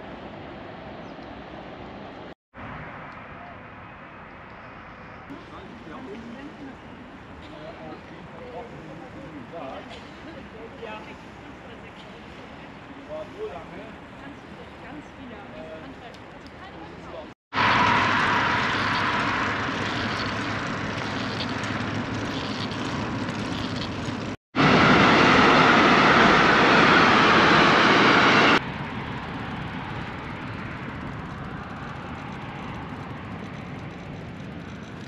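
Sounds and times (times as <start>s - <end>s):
wind: 0.0s - 35.0s
road traffic rushing: 1.4s - 35.0s
freight train rolling past: 17.6s - 35.0s.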